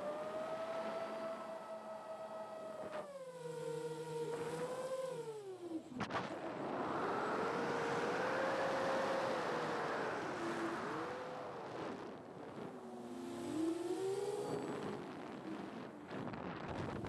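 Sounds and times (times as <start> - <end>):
drone motors whining: 0.0 - 17.0
wind noise: 14.4 - 17.0.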